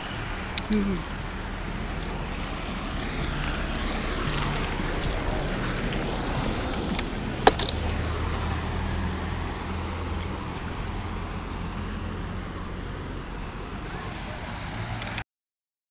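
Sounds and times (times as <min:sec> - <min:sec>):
outdoor rushing noise: 0:00.0 - 0:15.2
sharp click: 0:15.0 - 0:15.2.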